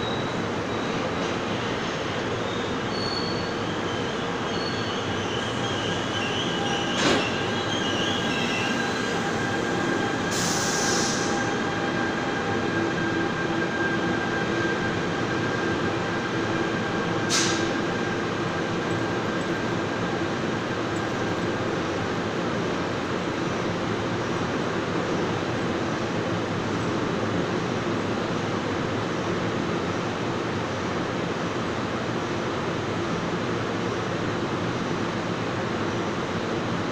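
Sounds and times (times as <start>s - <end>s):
train wheels rumbling on rail: 0.0s - 36.9s
wheel squeal: 2.4s - 12.1s
train clank: 6.5s - 7.5s, 17.1s - 21.6s
brief hiss: 10.3s - 11.4s, 17.3s - 17.8s.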